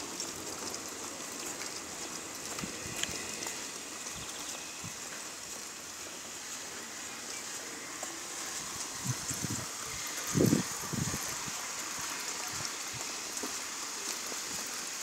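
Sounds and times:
outdoor background hiss: 0:00.0 - 0:15.0
footsteps on stone paving: 0:02.4 - 0:05.3.

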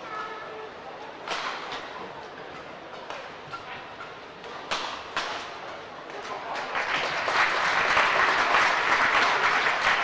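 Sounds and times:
crowd applause: 0:06.4 - 0:10.0.

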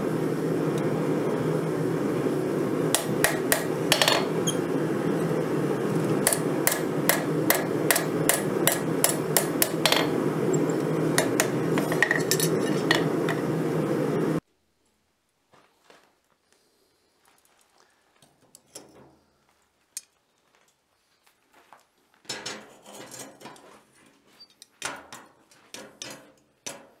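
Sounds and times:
steady rushing noise: 0:00.0 - 0:14.4
hammer striking steel on anvil: 0:03.0 - 0:04.6, 0:06.2 - 0:13.4.

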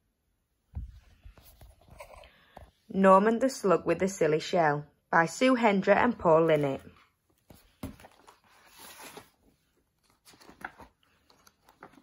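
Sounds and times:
book pages turning: 0:06.4 - 0:12.0.

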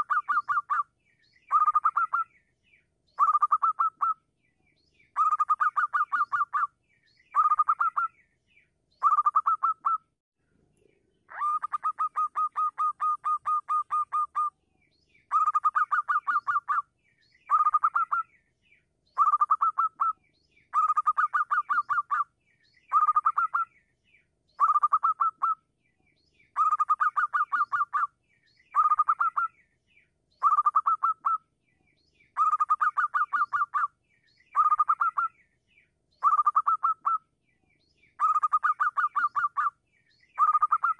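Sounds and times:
dove staccato cooing: 0:11.3 - 0:14.5.

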